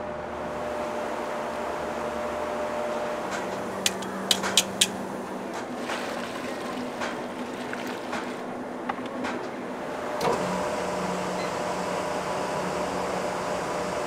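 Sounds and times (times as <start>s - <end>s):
machine hum: 0.0s - 14.0s
sharp clicks: 3.8s - 5.0s.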